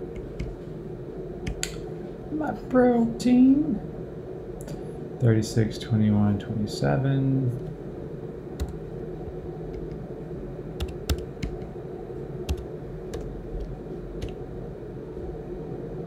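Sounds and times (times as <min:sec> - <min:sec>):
computer keyboard keystrokes: 0:00.1 - 0:00.6, 0:01.4 - 0:01.8, 0:08.6 - 0:08.8, 0:10.8 - 0:11.7, 0:12.5 - 0:14.4.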